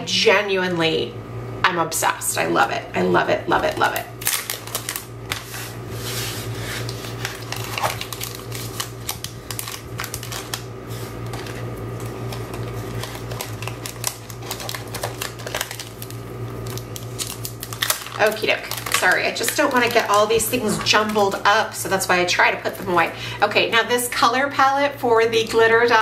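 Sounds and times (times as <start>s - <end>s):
steady low hum: 0.0s - 26.0s
papers and packaging rustling: 3.6s - 21.6s.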